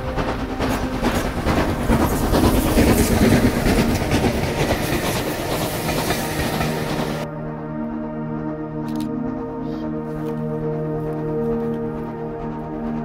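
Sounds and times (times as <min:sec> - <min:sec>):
steam hissing: 0:00.0 - 0:07.2
wheels knocking on rails: 0:00.0 - 0:07.2
steam train rumbling roar: 0:00.0 - 0:13.0.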